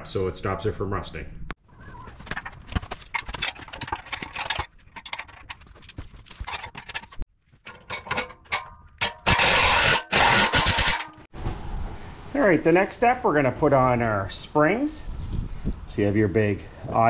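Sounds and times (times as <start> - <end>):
small metal parts clinking: 2.0 - 11.2.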